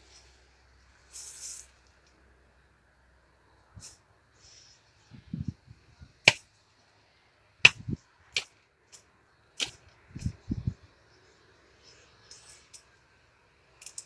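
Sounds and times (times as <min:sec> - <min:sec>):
hoe striking soil: 0:06.2 - 0:06.5, 0:07.6 - 0:08.6, 0:09.6 - 0:10.4.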